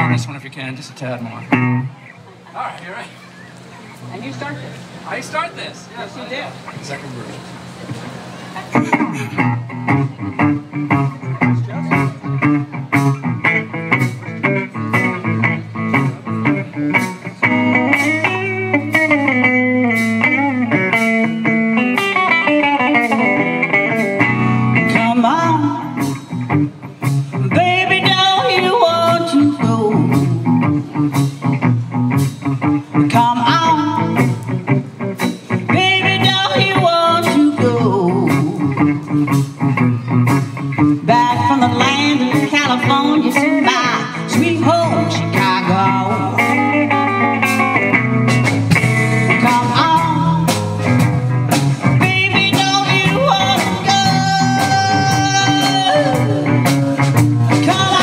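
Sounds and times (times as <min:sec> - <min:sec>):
blues-rock band playing: 0:00.0 - 0:58.0
woman singing lead: 0:24.8 - 0:26.2, 0:27.3 - 0:30.7, 0:33.0 - 0:34.4, 0:35.7 - 0:38.9, 0:40.9 - 0:47.3, 0:49.2 - 0:50.6, 0:52.0 - 0:56.7, 0:57.5 - 0:58.0.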